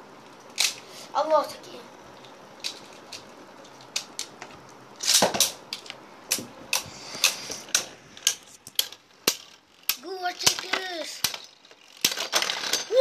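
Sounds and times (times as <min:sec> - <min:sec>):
spinning tops clashing plastic clicks: 0:07.2 - 0:13.0.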